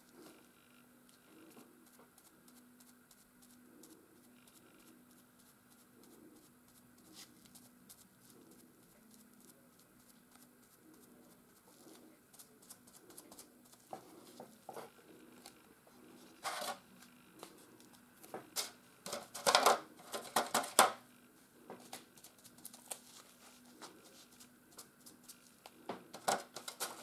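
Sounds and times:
faint low hum: 0.0 - 27.0
sponge dabbing paint: 1.5 - 16.4.

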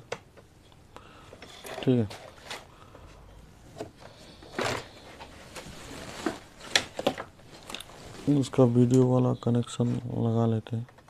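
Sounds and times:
rustling scrape: 4.1 - 6.8, 7.5 - 8.9.

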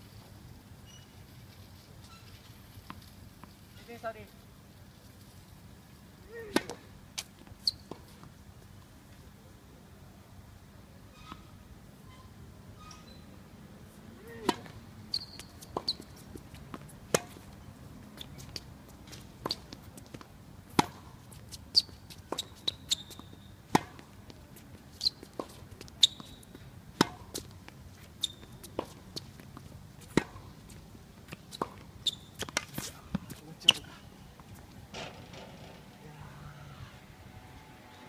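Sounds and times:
short high squeaks: 0.8 - 1.2, 2.0 - 2.5, 7.6 - 7.9, 11.1 - 13.3, 15.1 - 16.2, 21.7 - 23.5, 25.0 - 25.4, 26.0 - 26.6, 28.2 - 28.8, 31.5 - 32.6
racket hitting tennis ball: 6.3 - 7.3, 14.2 - 14.8, 15.7 - 17.5, 20.7 - 21.1, 22.3 - 24.2, 25.0 - 27.5, 28.6 - 29.3, 30.0 - 30.5, 31.4 - 34.0
tennis ball bouncing: 14.4 - 17.5, 18.2 - 24.3, 25.0 - 27.5, 28.2 - 30.7, 31.3 - 35.8.

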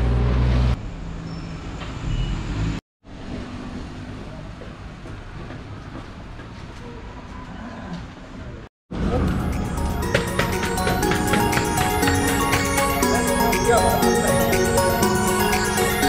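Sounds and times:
background music: 8.9 - 16.0.

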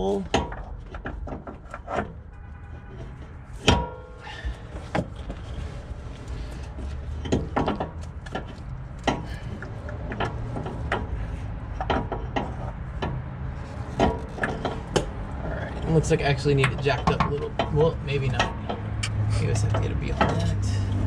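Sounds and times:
knocks clicks and scrapes of metal part: 0.0 - 21.0
metallic clank: 3.0 - 5.2.

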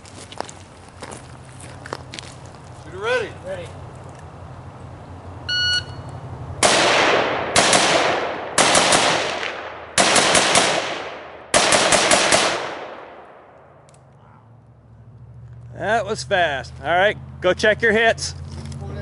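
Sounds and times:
shot timer beep: 5.5 - 6.1
rifle gunshots with echo: 6.6 - 13.8.

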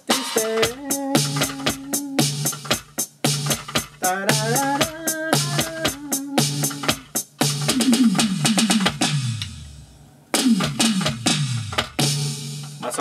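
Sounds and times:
electronic drum tom fills: 0.0 - 13.0
kick and snare hits: 2.4 - 6.0, 6.6 - 9.6, 10.4 - 12.7.

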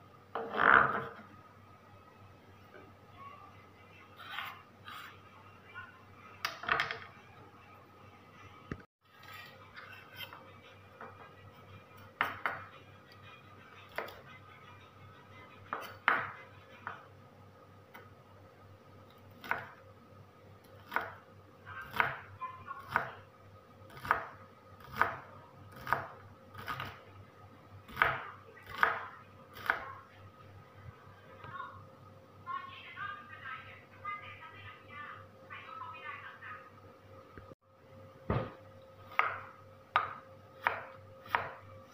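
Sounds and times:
knife chopping on wooden board: 23.9 - 25.2, 27.9 - 29.0, 38.3 - 41.6.

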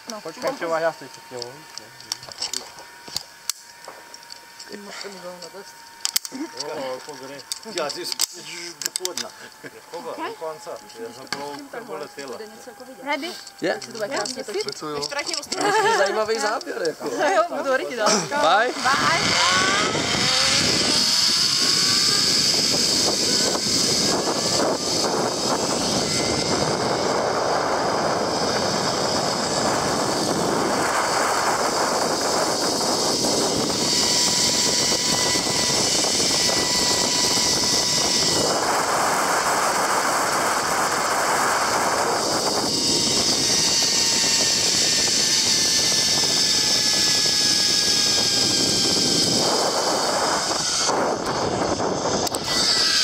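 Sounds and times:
zip-line pulley whirring: 0.0 - 53.0
rushing wind: 18.1 - 53.0.

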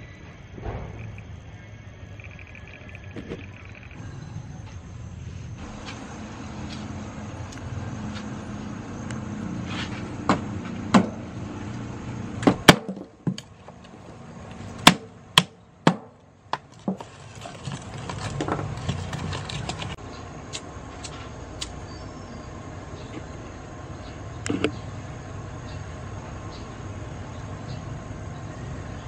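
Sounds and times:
charcoal lumps clacking and knocking: 12.4 - 20.0
paper rustling and crackling: 16.8 - 20.0.

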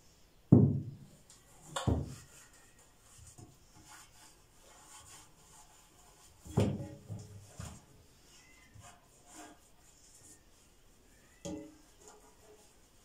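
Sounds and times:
soft rubbing and scraping: 1.4 - 13.0.

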